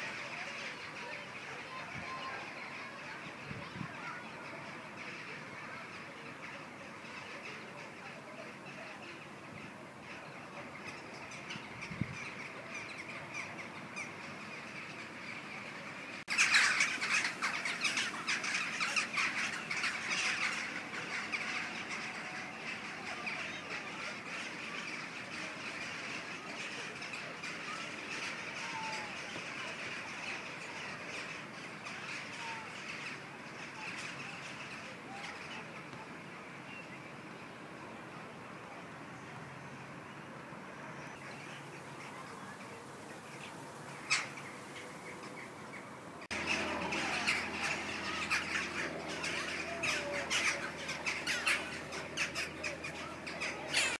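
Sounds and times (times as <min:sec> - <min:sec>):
crows cawing in flight: 0:16.2 - 0:35.5, 0:46.3 - 0:53.9.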